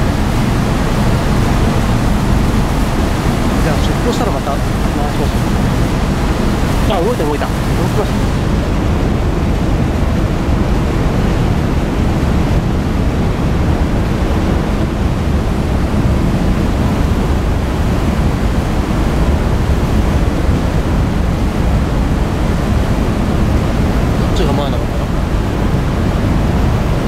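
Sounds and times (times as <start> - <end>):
low rumble: 0.0 - 14.0
water churned by ship propellers: 0.0 - 27.0.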